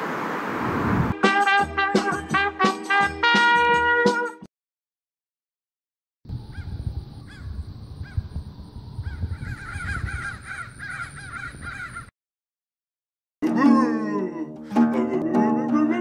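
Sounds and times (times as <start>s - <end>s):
short bird calls: 9.1s - 12.1s.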